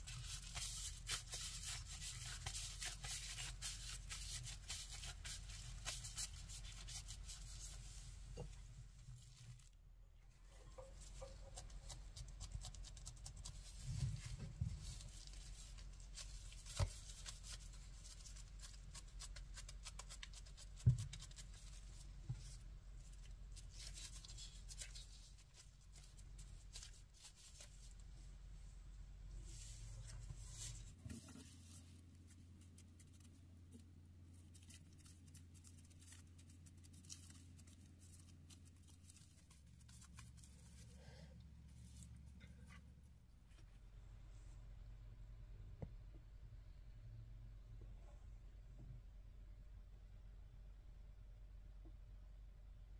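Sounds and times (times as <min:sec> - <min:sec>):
plastic gloves crinkling: 0:00.0 - 0:09.8, 0:10.4 - 0:28.1, 0:29.5 - 0:42.8.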